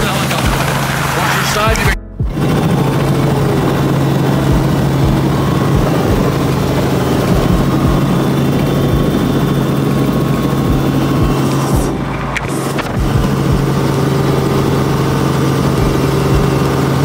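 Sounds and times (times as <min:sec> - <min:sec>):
low thumps: 0:00.0 - 0:14.5, 0:15.7 - 0:17.0
helicopter engine and rotor drone: 0:00.0 - 0:17.0.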